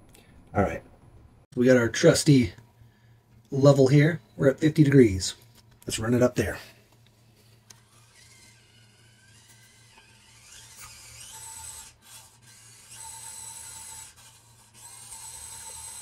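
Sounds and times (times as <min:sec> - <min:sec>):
small electric motor whining: 0:07.4 - 0:16.0.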